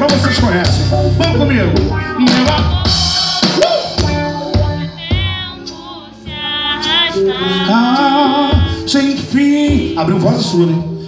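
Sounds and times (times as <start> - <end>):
electric bass: 0.0 - 10.1
drum kit: 0.0 - 10.6
high wavering melody: 2.8 - 9.3.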